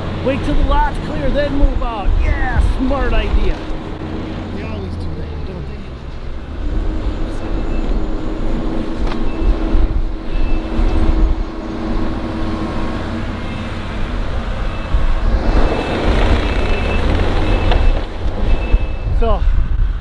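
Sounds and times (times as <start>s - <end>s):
diesel engines under load: 0.0s - 20.0s
harsh rushing noise: 0.0s - 20.0s
high reversing beep: 7.2s - 8.4s, 9.2s - 11.4s, 12.8s - 19.2s.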